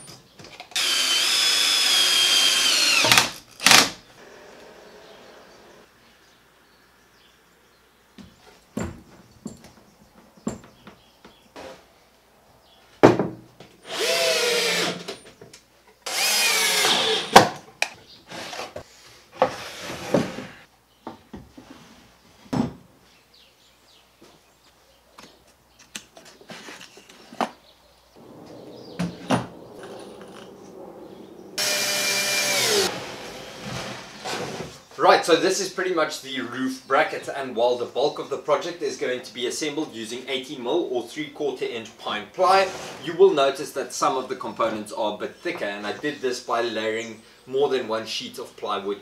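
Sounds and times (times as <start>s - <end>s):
cordless drill driving screws: 0.7s - 4.7s, 13.9s - 15.2s, 16.1s - 17.4s, 31.6s - 34.6s.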